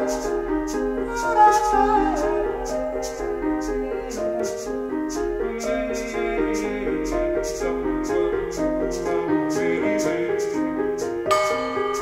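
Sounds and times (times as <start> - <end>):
minimalist piano music: 0.0 - 12.0.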